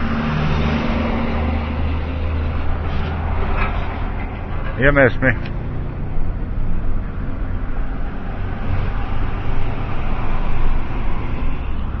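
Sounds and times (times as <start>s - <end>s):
low engine hum: 0.0s - 12.0s
tyre road noise: 0.0s - 12.0s.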